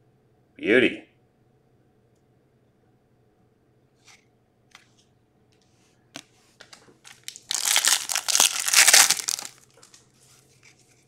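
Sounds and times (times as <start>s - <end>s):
foil wrapper crinkling: 6.7s - 10.0s.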